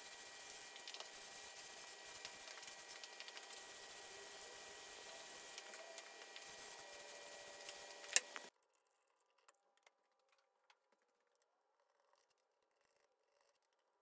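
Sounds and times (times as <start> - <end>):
steady hum and hiss: 0.0 - 8.5.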